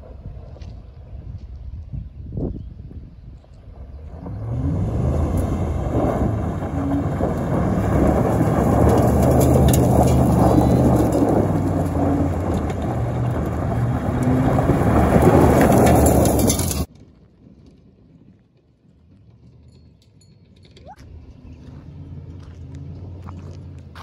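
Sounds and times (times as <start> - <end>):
truck engine at high revs: 4.0 - 16.9, 21.0 - 24.0
tyres spraying gravel: 4.2 - 16.9.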